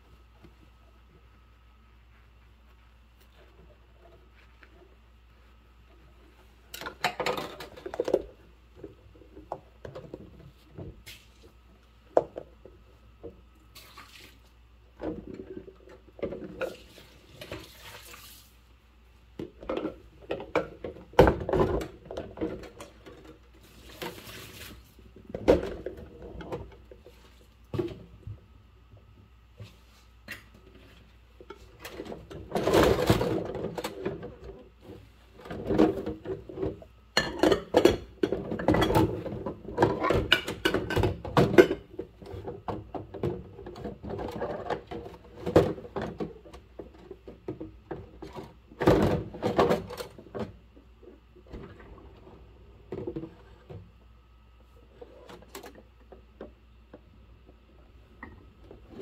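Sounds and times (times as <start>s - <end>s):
water sloshing and splashing: 13.7s - 14.5s, 16.6s - 18.7s
dishes clinking in a sink: 37.2s - 39.1s, 39.8s - 41.9s.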